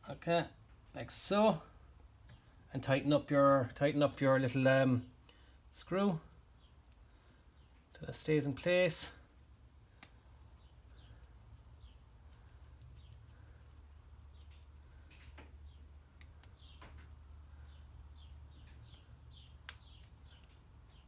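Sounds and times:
low steady hum: 0:04.8 - 0:21.0.

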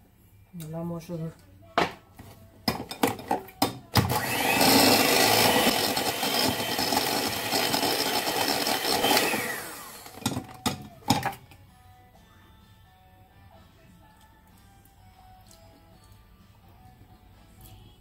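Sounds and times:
electric hand mixer running: 0:04.0 - 0:10.6.

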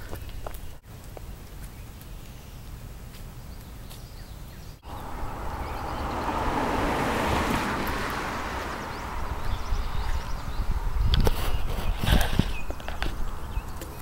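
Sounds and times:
car passing: 0:04.8 - 0:11.1.

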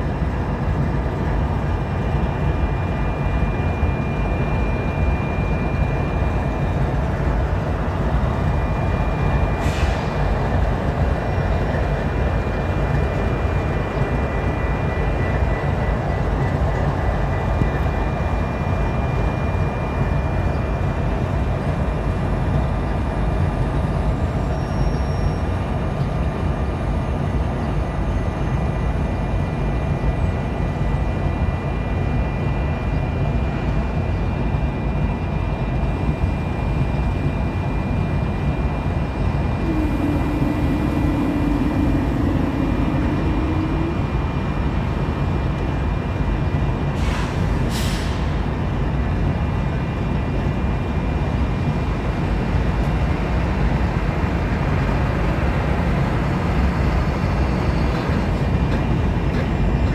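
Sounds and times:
faint steady whine: 0:00.0 - 0:46.6
diesel locomotive idling: 0:00.0 - 0:59.9
air brake hiss: 0:09.6 - 0:10.3, 0:47.0 - 0:48.4
low held tone: 0:39.6 - 0:45.2.

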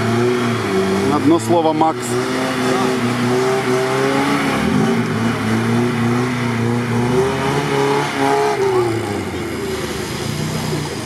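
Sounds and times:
engine revving hard: 0:00.0 - 0:11.0.

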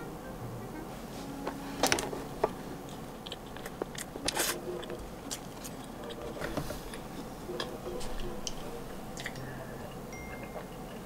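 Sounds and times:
chewing: 0:02.8 - 0:11.0.

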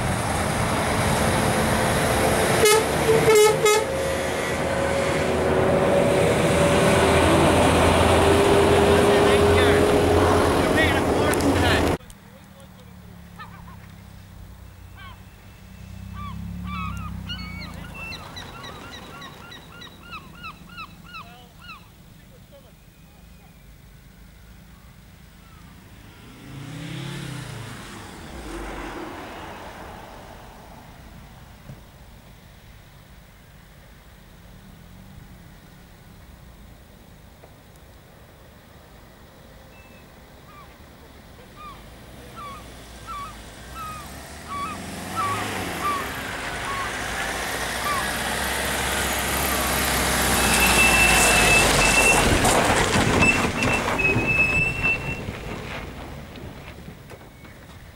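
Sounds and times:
car passing: 0:00.0 - 0:37.4, 0:38.3 - 0:57.9
van approaching: 0:00.0 - 0:57.9
birds calling: 0:09.0 - 0:25.9, 0:39.6 - 0:55.3
short pitched calls: 0:14.8 - 0:23.6, 0:41.5 - 0:47.1, 0:47.8 - 0:48.2.

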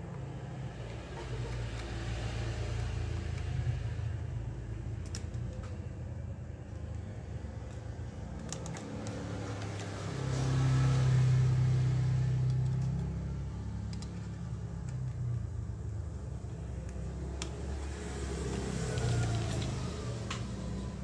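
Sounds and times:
low motor hum: 0:00.0 - 0:21.0.

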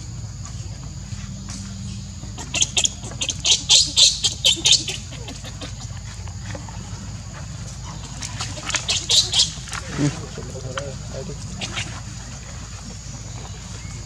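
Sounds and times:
baby monkey squealing: 0:02.4 - 0:06.0, 0:07.9 - 0:09.7.

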